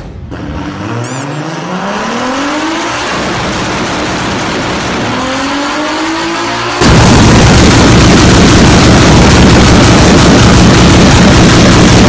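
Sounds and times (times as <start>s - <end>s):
exhaust bangs and pops: 3.0s - 12.0s.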